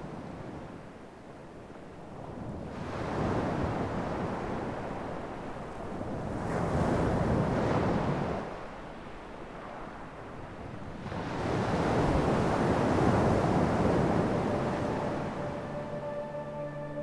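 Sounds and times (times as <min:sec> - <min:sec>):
waves breaking on rocky shore: 0:02.4 - 0:15.4.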